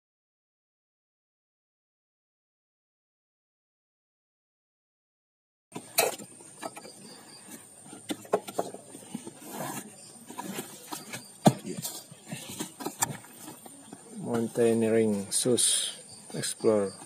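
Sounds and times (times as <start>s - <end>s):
cardboard box handled by hand: 7.9s - 14.1s.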